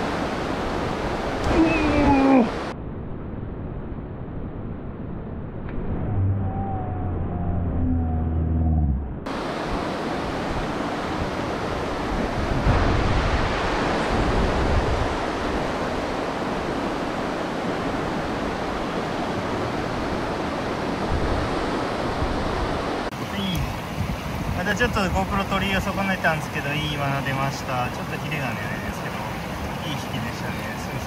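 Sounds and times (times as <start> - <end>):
stream rushing over rocks: 0.0 - 2.7, 9.3 - 31.0.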